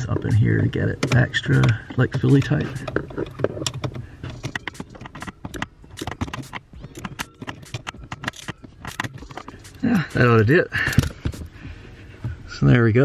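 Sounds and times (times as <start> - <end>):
ratchet clicking: 0.3 - 10.3.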